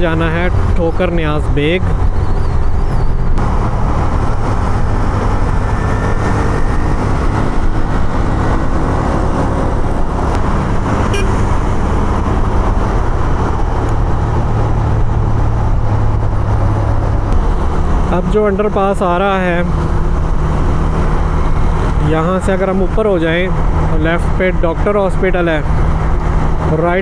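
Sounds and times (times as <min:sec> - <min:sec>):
wind noise: 0:00.0 - 0:18.1
road noise: 0:00.0 - 0:27.0.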